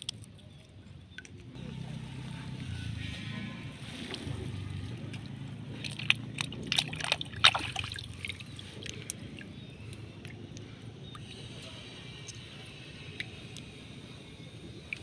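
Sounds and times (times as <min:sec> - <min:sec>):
small splashes and drips: 0:00.0 - 0:01.6, 0:04.1 - 0:12.4
steady low hum: 0:00.0 - 0:15.0
hand sloshing in water: 0:05.8 - 0:09.5.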